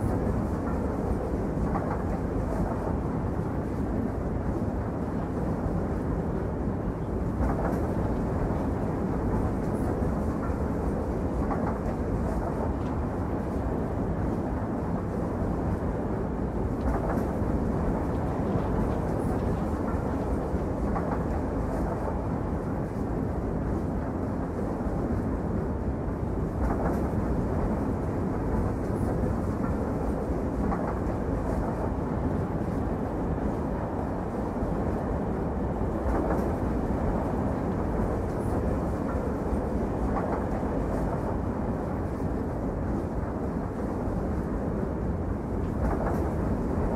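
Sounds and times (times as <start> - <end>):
train rumbling: 0.0 - 46.9.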